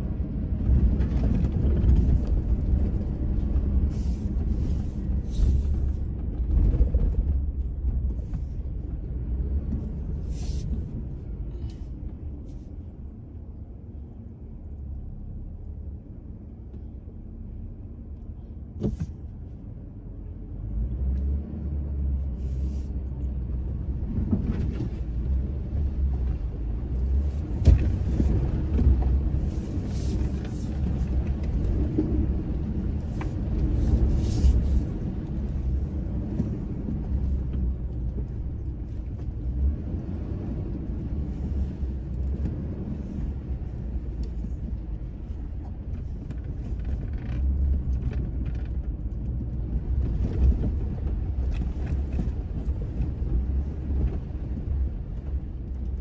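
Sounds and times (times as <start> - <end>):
car cabin engine rumble: 0.0 - 56.0.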